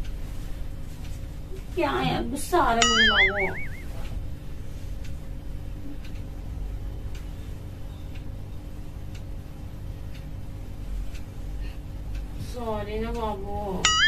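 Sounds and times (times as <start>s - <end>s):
steady low hum: 0.0s - 14.0s
clock ticking: 2.8s - 4.2s, 12.0s - 14.0s.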